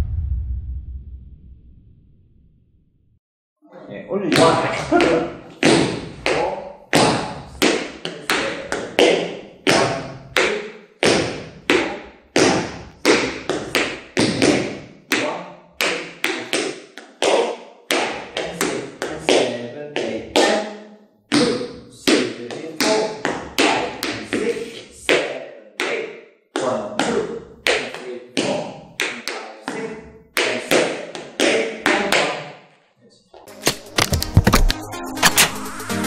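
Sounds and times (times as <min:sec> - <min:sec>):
tap shoes on wooden floor: 0:04.3 - 0:20.5.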